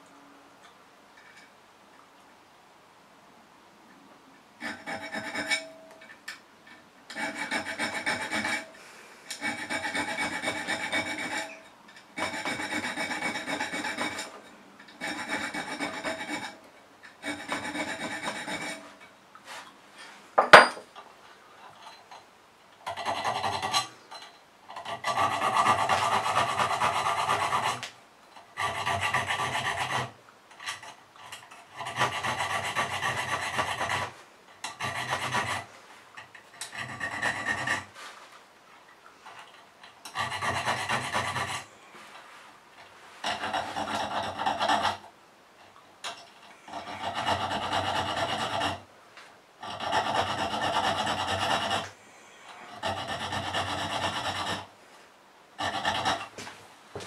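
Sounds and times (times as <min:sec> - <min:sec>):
hand file rasping on steel: 0:04.6 - 0:06.0, 0:07.1 - 0:19.1, 0:22.8 - 0:23.9, 0:24.7 - 0:38.0, 0:40.0 - 0:41.7, 0:43.2 - 0:45.0, 0:46.6 - 0:48.9, 0:49.6 - 0:52.0, 0:52.6 - 0:54.7, 0:55.6 - 0:56.4.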